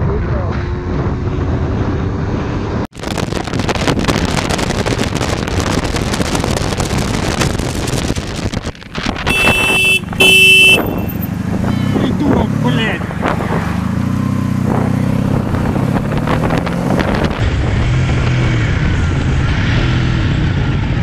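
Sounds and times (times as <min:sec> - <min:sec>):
wind rushing over microphone: 0:00.0 - 0:21.0
motorcycle engine running: 0:03.8 - 0:19.3
vehicle horn blasts: 0:09.3 - 0:12.1.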